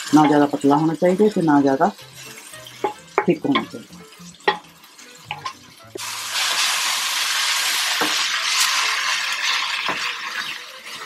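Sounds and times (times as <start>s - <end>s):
greens sizzling in hot oil: 0.0s - 11.0s
spatula knocking on pan: 2.8s - 3.8s, 4.4s - 4.7s.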